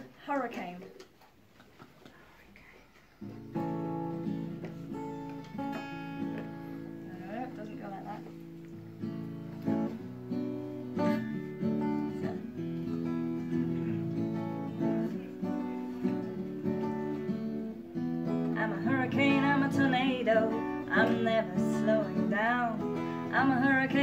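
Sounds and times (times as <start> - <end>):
acoustic guitar strumming: 3.2 - 24.0
woman singing: 17.9 - 24.0.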